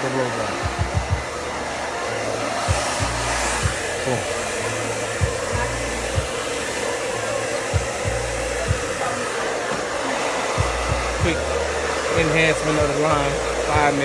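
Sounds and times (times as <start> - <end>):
blow dryer blowing: 0.0 - 14.0
short low thumps: 0.6 - 1.3.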